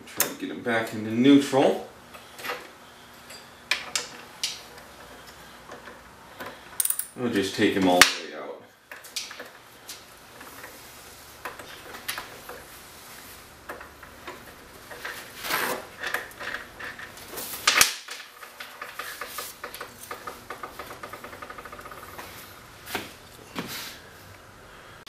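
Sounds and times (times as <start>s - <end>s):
metal parts clicking and clinking: 5.2s - 7.2s.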